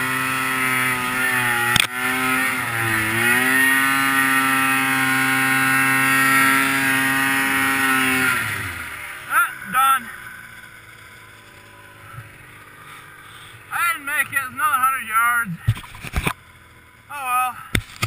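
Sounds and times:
snowmobile engine at high revs: 0.0 - 18.0.

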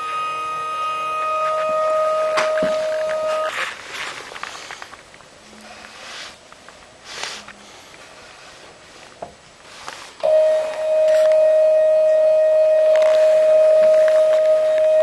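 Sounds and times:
stepper motor high-pitched whine: 0.0 - 3.5.

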